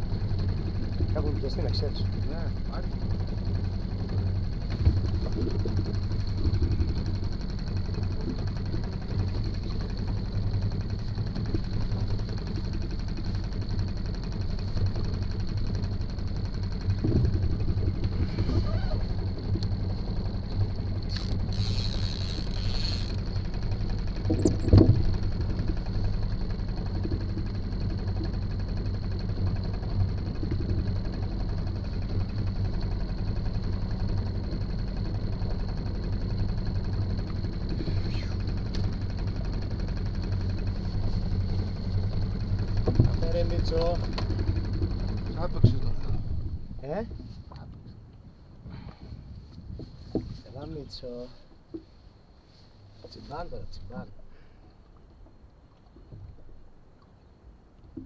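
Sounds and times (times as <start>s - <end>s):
boat engine idling: 0.0s - 58.0s.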